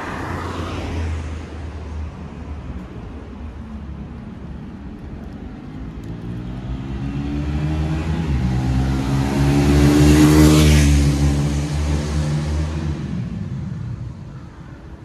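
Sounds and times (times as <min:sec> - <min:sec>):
vehicle passing by: 0:06.0 - 0:14.2.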